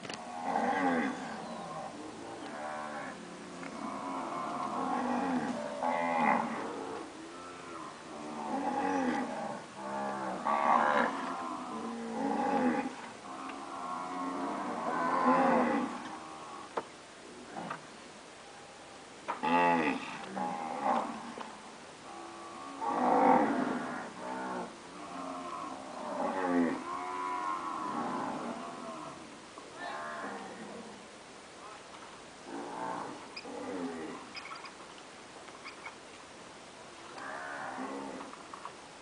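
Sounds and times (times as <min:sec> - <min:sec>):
cows mooing: 0:00.2 - 0:16.7, 0:22.1 - 0:29.2.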